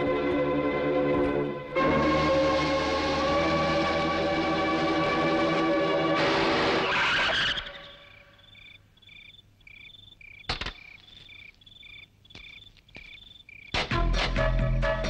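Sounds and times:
music: 0.0s - 7.3s, 13.8s - 15.0s
cricket chirping: 7.6s - 13.9s
sharp clicks: 10.4s - 11.1s.

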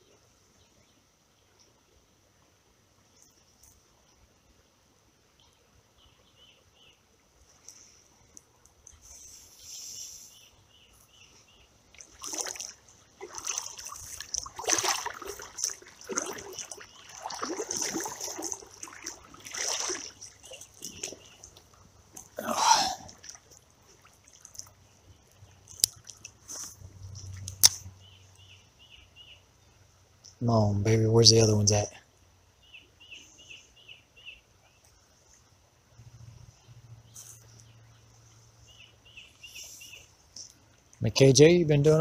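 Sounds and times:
water splashing and sloshing: 11.1s - 28.0s.

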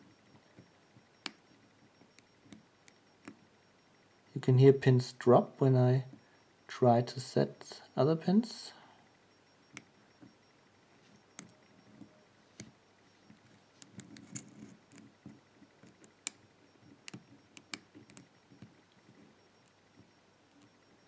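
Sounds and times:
fingers handling lock: 13.8s - 15.1s.

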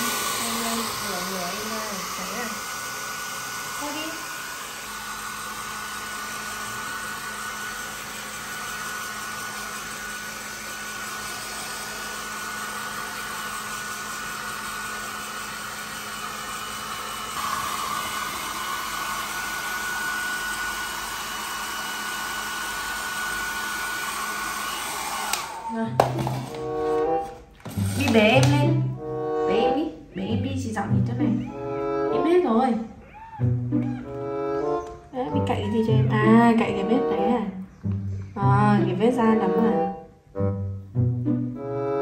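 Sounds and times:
hair dryer running: 0.0s - 29.8s, 33.8s - 37.4s.

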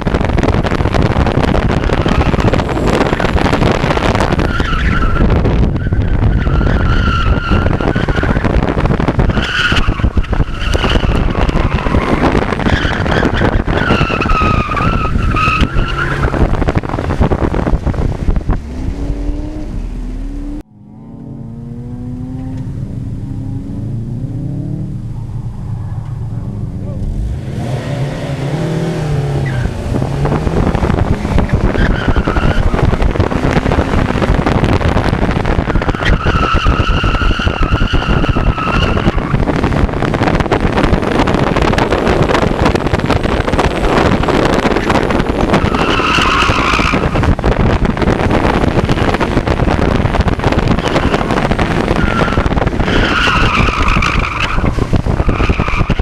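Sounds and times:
wind on microphone: 0.0s - 56.0s
car engine revving high: 0.2s - 56.0s
tyres squealing: 51.9s - 56.0s.

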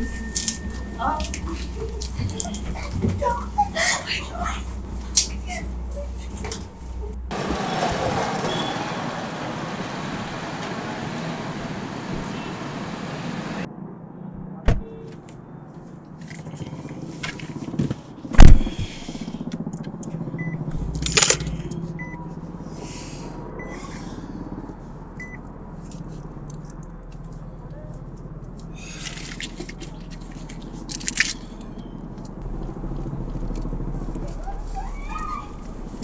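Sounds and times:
keys jangling: 0.0s - 2.9s, 20.8s - 21.8s, 29.0s - 31.7s
street traffic noise: 0.0s - 36.0s
sharp thumps in car: 14.6s - 14.8s, 17.7s - 18.9s
small handling clicks: 29.0s - 32.4s.

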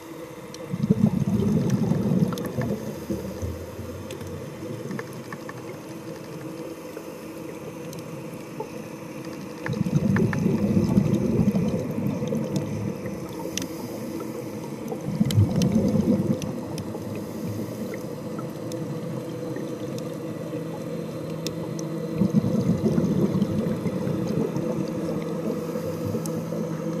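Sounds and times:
low steady hum: 0.0s - 27.0s
exhaled bubbles underwater: 0.5s - 27.0s
faint clicks: 4.0s - 10.5s, 12.1s - 17.2s, 17.9s - 22.0s, 26.1s - 27.0s.

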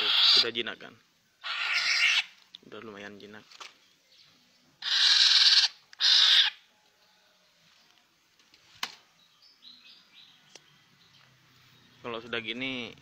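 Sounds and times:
bird harsh rasping calls: 0.0s - 0.6s, 1.4s - 2.4s, 4.8s - 6.7s.

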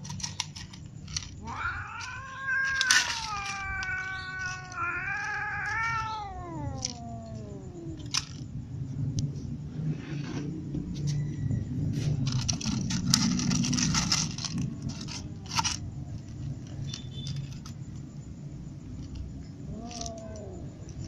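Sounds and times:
cat yowling: 1.4s - 8.2s, 19.6s - 21.0s.

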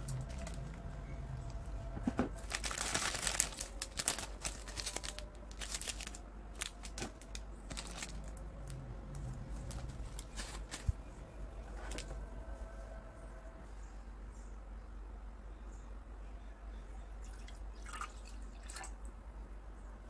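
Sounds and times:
plastic wrapper crinkling: 0.0s - 0.9s, 2.1s - 11.0s.

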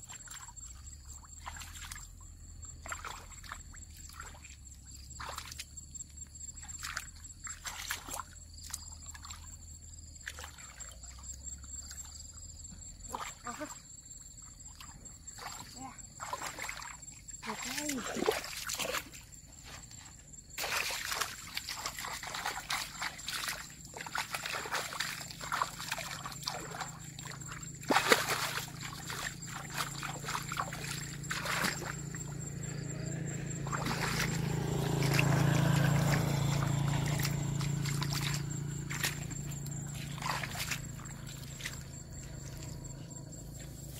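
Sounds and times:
muddy water splashing: 0.0s - 43.9s
steady low hum: 19.0s - 43.9s.

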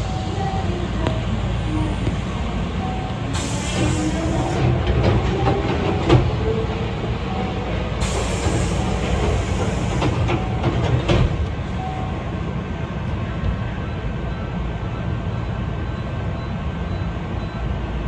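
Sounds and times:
train low rumble: 0.0s - 18.0s.

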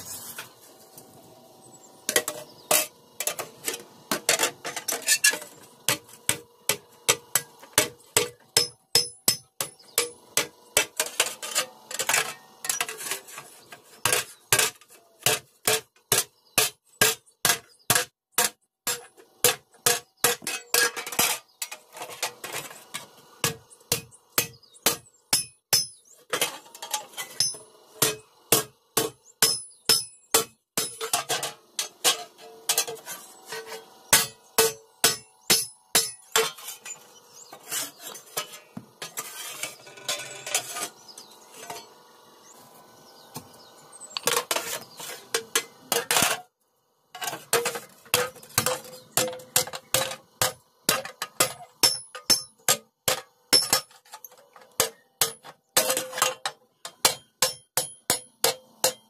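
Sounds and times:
hammer striking metal on anvil: 5.9s - 11.0s, 23.4s - 26.0s, 27.4s - 32.9s, 34.1s - 36.6s, 48.6s - 53.9s, 56.9s - 59.0s.

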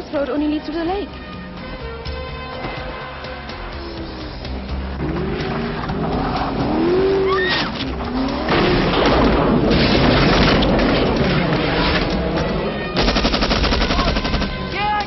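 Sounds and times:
car engine revving: 2.8s - 13.0s
woman shrieking: 7.2s - 7.7s
tyres squealing on ice: 7.2s - 7.8s.

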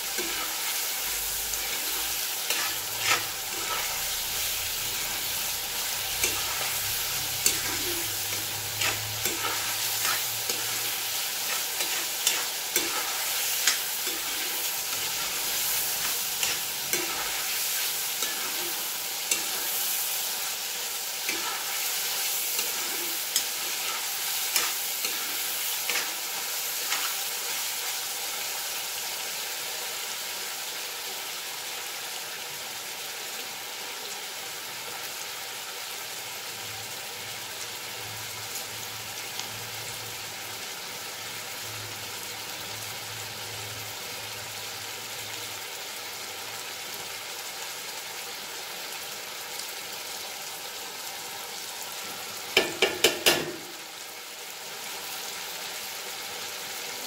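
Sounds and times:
meat and onions sizzling in a pan: 0.0s - 57.0s
spatula scraping a pan: 1.6s - 20.2s, 21.2s - 27.5s.

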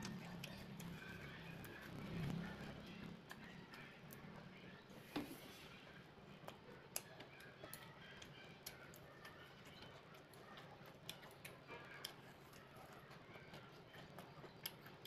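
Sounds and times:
chewing clicks and smacks: 0.0s - 2.6s, 5.9s - 15.0s
faint low hum: 0.0s - 15.0s.

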